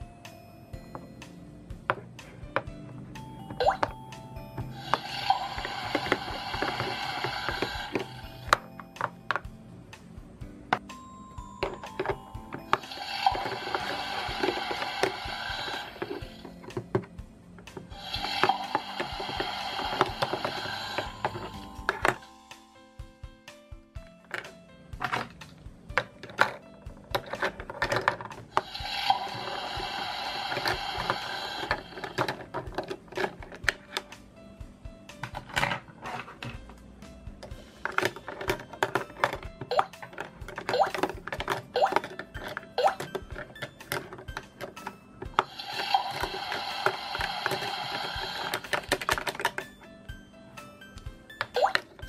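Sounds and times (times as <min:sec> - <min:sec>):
plastic utensils tapping plastic sink: 0:37.4 - 0:45.5, 0:46.1 - 0:49.7
plastic toy cookware clicking: 0:37.4 - 0:49.8.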